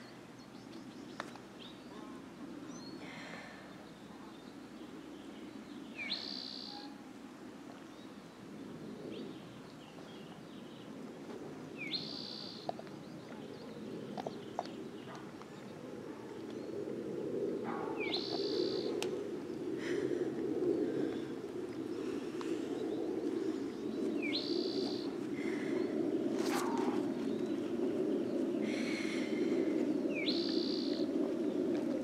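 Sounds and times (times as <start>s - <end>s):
low background noise: 0.0s - 32.0s
bird calling: 6.0s - 7.0s, 11.8s - 16.8s, 17.6s - 27.7s, 28.4s - 31.1s.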